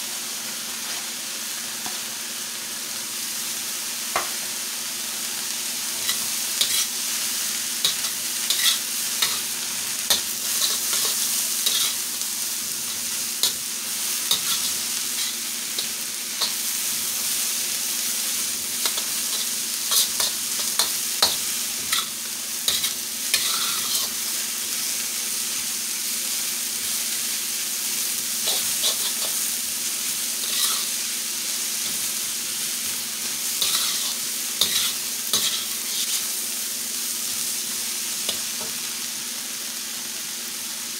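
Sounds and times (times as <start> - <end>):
vegetables sizzling in a wok: 0.0 - 40.9
metal spatula scraping wok: 6.0 - 6.9, 7.8 - 9.4, 10.1 - 12.0, 14.3 - 16.6, 22.7 - 24.2, 28.4 - 29.4, 30.4 - 31.0, 33.6 - 36.3.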